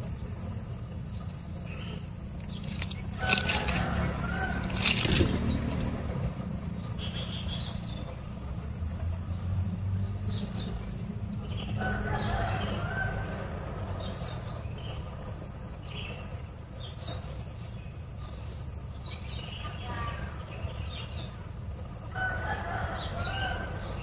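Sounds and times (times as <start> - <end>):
wings brushing dry grass: 2.4 - 6.2.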